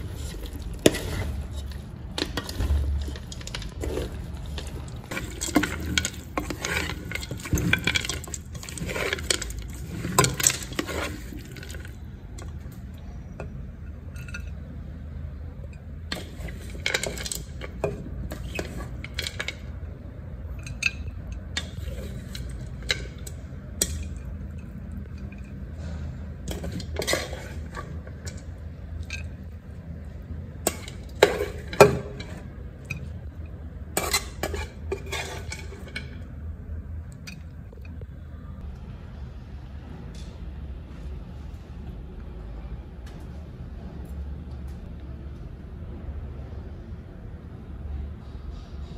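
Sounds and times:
spatula scraping a wok: 0.0s - 11.9s, 21.5s - 23.9s, 25.6s - 28.4s, 33.8s - 36.2s
utensil clinking on pan and plate: 0.0s - 12.5s.

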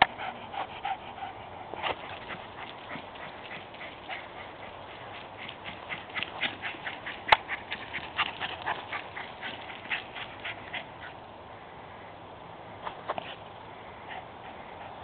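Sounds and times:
dog panting: 0.0s - 11.2s.

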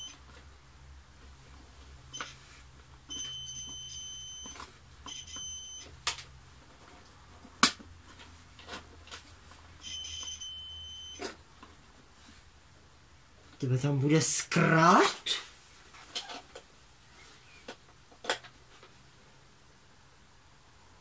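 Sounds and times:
multimeter beeping: 0.0s - 0.2s, 3.1s - 5.9s, 9.8s - 11.2s.

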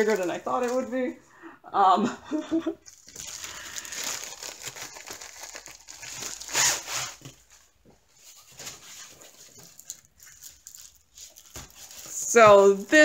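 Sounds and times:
plastic packaging crinkling: 0.0s - 1.1s, 2.8s - 13.0s
canvas sliding out of plastic: 6.4s - 7.4s.

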